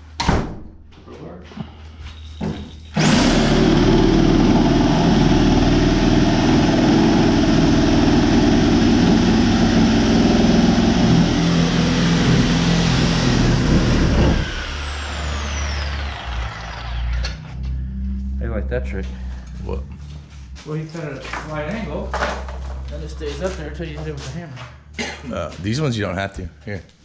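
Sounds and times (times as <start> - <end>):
machine motor whining: 3.0 - 22.0.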